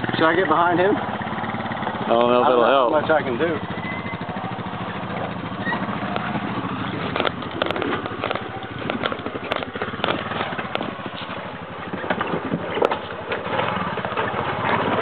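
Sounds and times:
engine running at low putter: 0.0 - 15.0.

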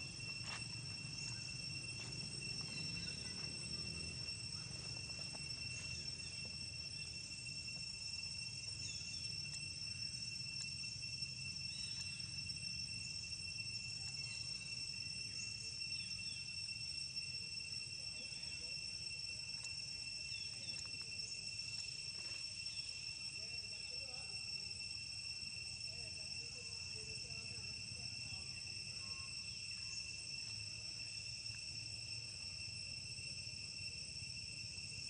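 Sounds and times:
high-pitched insect drone: 0.0 - 35.0.

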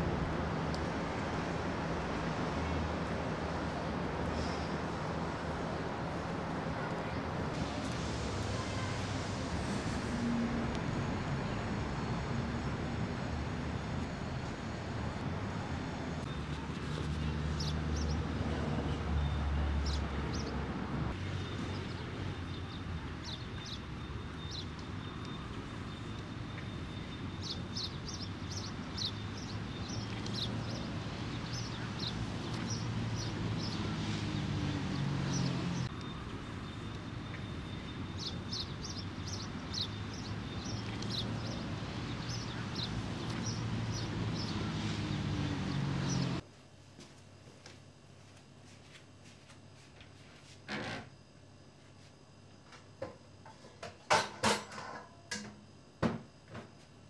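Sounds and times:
steady low hum: 9.0 - 17.3
small birds chirping: 16.2 - 18.3, 21.8 - 46.4.

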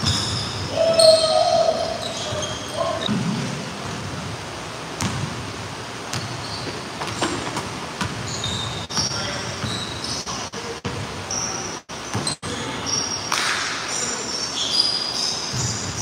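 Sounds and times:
basketball bouncing on hardwood floor: 5.0 - 5.3.

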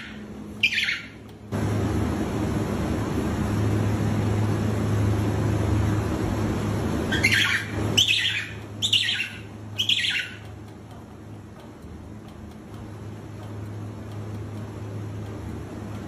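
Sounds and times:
penguin chick whistling chirps: 0.0 - 1.2, 7.2 - 10.4
steady low hum: 0.0 - 16.0.

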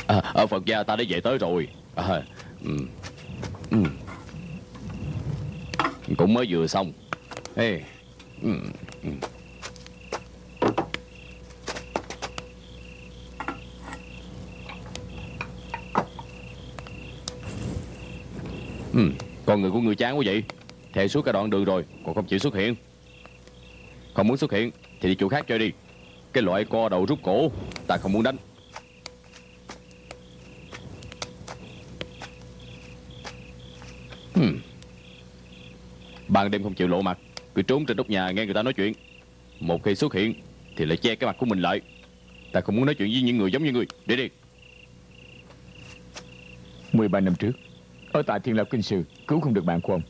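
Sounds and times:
crickets chirping: 0.0 - 50.0
low steady hum: 0.0 - 50.0
man's low vocal sound: 3.7 - 4.7, 8.4 - 9.3, 18.9 - 19.2, 34.3 - 34.8
sharp clicks and knocks: 5.7 - 6.2, 8.9 - 11.0
sharp clicks: 28.7 - 32.5.

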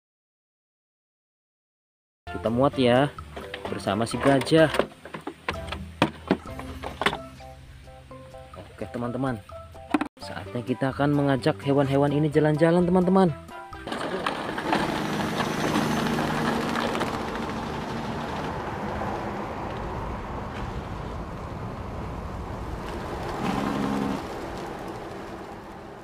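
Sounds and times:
truck engine running: 13.9 - 26.0.

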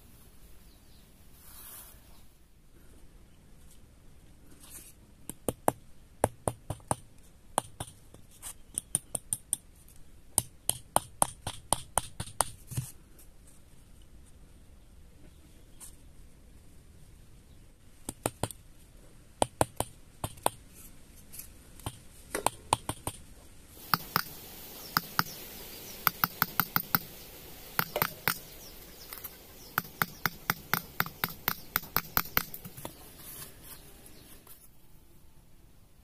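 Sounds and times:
light steady hiss: 0.0 - 36.0
sharp clicks and taps: 18.0 - 18.6, 19.4 - 20.6, 21.8 - 23.2, 23.8 - 25.4, 26.0 - 33.0.

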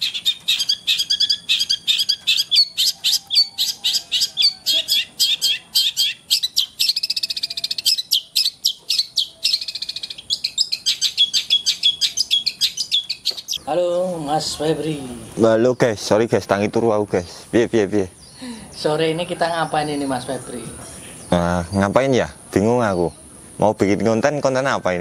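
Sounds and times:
bird trills: 0.0 - 13.6
bird singing rapid high notes: 0.0 - 16.1.

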